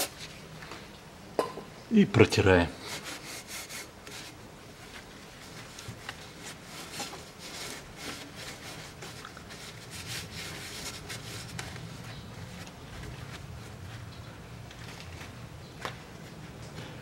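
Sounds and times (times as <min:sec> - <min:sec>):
rag wiping metal pipe: 0:02.7 - 0:13.9.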